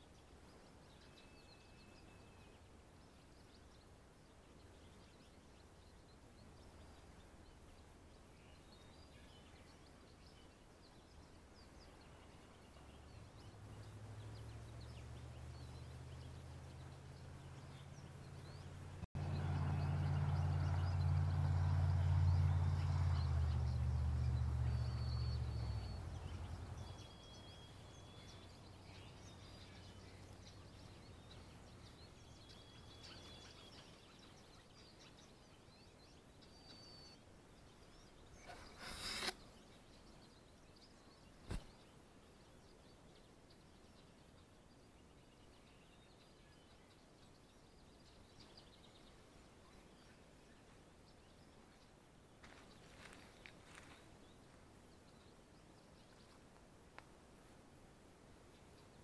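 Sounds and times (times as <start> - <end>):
faint high bird chirps: 0.0 - 51.9
brief rushing burst: 38.4 - 39.4
sharp click: 38.4 - 39.4.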